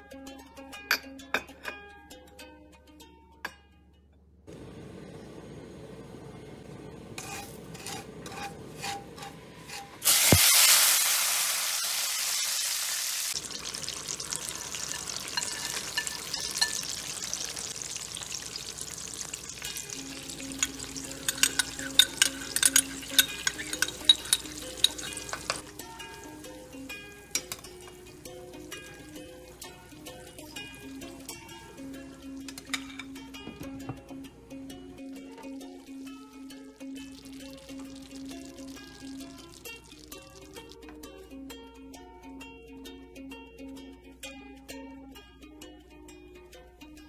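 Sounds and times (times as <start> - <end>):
plucked-string background music: 0.0 - 4.6, 7.2 - 10.4, 13.3 - 47.0
liquid bubbling and sizzling: 4.5 - 41.0
liquid hissing in a hot pan: 10.0 - 26.1.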